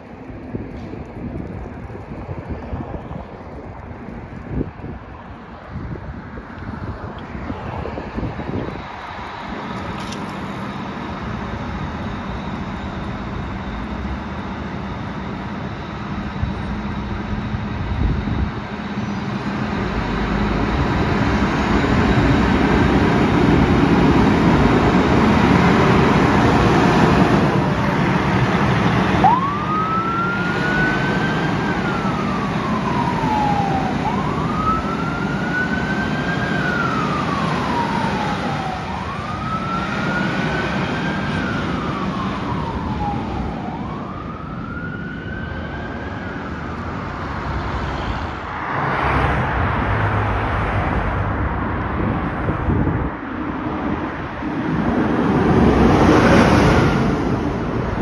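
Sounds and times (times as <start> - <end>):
diesel engine running: 0.0 - 44.8
siren wailing: 7.2 - 51.1.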